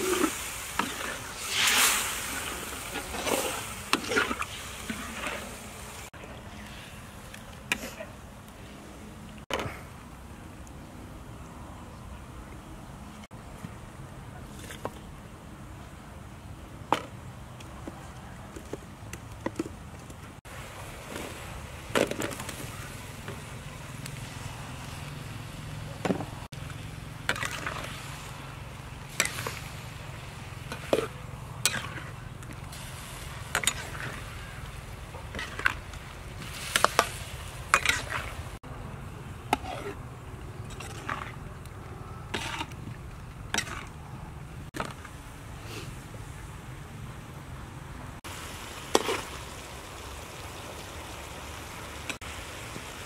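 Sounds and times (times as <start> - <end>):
metal spatula scraping a wok: 0.0 - 5.6, 30.7 - 32.1, 42.3 - 42.8.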